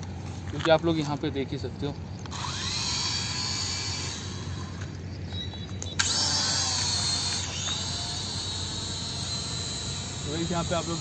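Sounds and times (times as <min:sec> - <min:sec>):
quadcopter propellers whining: 0:02.2 - 0:05.1, 0:05.9 - 0:11.0.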